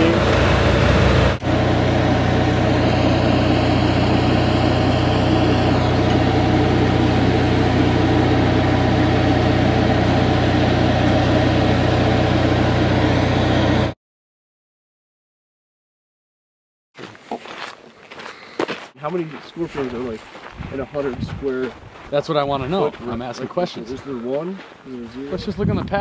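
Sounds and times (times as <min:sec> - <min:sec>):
engine idling: 0:00.0 - 0:14.0.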